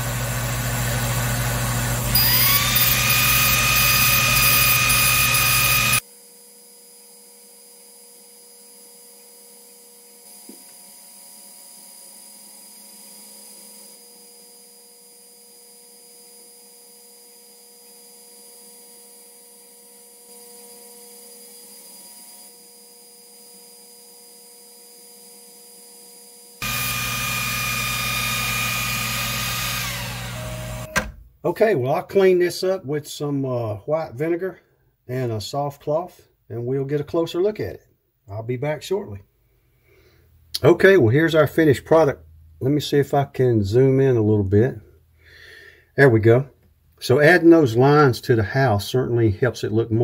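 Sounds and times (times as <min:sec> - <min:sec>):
machine whine: 0:01.5 - 0:06.0, 0:26.6 - 0:31.2
faint hum with high tones: 0:02.1 - 0:11.0
laser engraver machine noise: 0:02.1 - 0:30.9.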